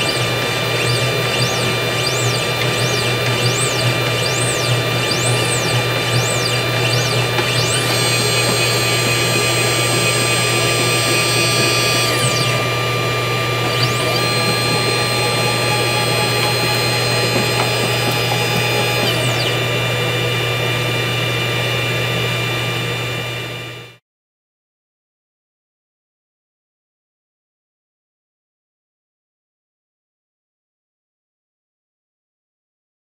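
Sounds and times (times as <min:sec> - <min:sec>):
stepper motors whining: 0:00.0 - 0:23.9.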